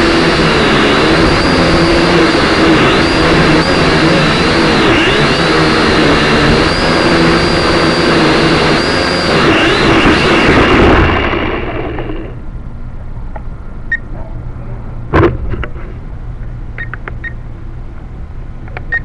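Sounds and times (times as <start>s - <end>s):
small motor running: 0.0s - 12.4s.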